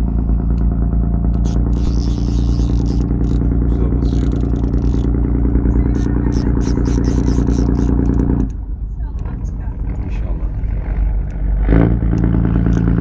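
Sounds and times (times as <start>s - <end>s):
boat engine idling: 0.0s - 11.2s
high-pitched rasping bursts: 1.4s - 8.5s.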